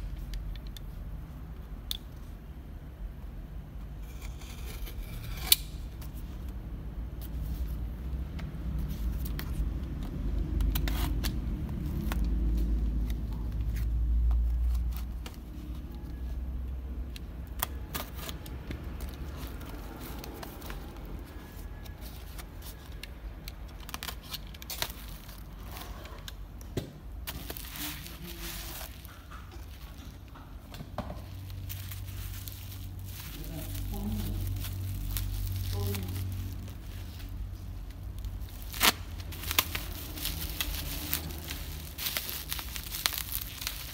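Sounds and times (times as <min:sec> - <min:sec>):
bubble wrap crinkling: 0:04.1 - 0:43.9
low handling rumble: 0:27.4 - 0:43.9
paper wrapping tearing: 0:31.2 - 0:43.9.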